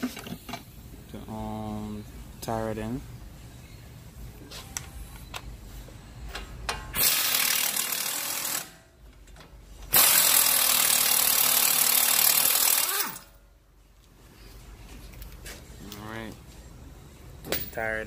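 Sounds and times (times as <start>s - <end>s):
pneumatic impact wrench: 6.9s - 8.8s, 9.9s - 13.4s.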